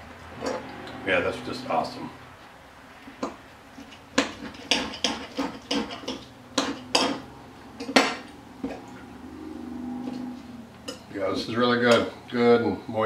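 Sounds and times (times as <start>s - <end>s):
cutlery scraping a ceramic plate: 3.8s - 8.8s.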